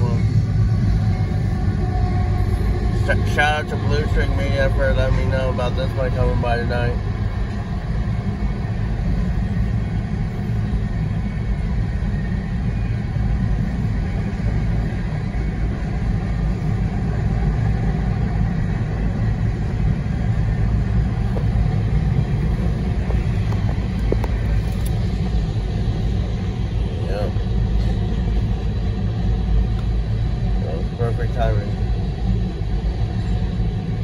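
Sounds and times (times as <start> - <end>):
freight train rumbling: 0.0 - 34.0.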